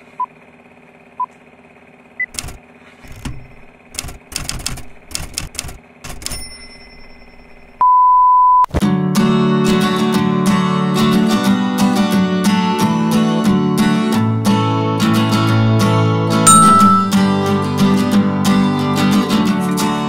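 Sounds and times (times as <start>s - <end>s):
typewriter keys clacking: 2.3s - 6.6s
typewriter bell ding: 6.1s - 7.8s, 16.5s - 17.4s
countdown beep: 7.8s - 8.7s, 16.5s - 17.4s
test-tone beep: 7.8s - 8.7s, 16.5s - 17.4s
acoustic guitar music: 8.8s - 20.0s.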